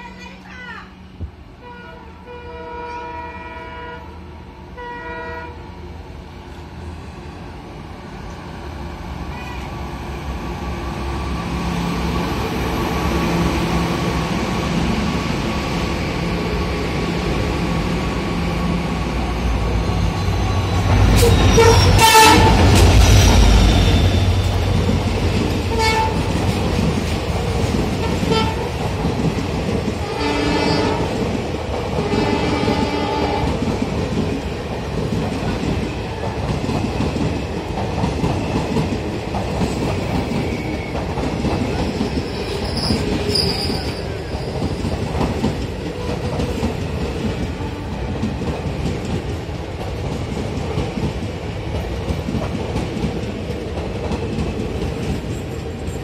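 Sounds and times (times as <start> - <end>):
low rumble of approaching train: 0.0 - 56.0
locomotive horn blasts: 1.6 - 4.2, 4.8 - 5.6, 21.5 - 22.6, 25.7 - 26.2, 28.1 - 28.7, 30.0 - 31.1, 32.0 - 33.5.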